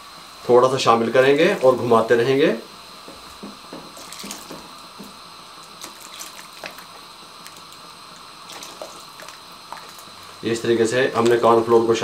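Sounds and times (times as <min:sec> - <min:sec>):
soup simmering with pops: 0:03.1 - 0:10.4
liquid pouring: 0:04.0 - 0:04.6, 0:05.7 - 0:10.4.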